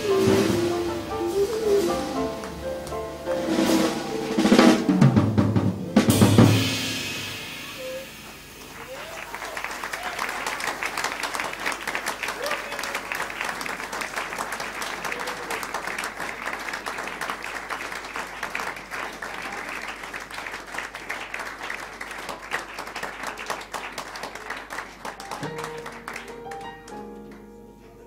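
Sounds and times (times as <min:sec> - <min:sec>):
audience applauding: 0:00.0 - 0:04.7, 0:07.8 - 0:27.5
grand piano playing: 0:00.0 - 0:09.0, 0:25.2 - 0:28.0.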